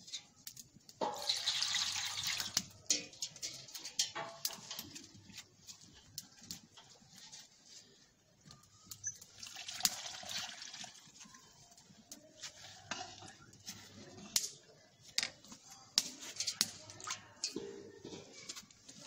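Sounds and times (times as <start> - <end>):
metal ladle clinking against pan: 2.4 - 5.1, 16.0 - 18.4.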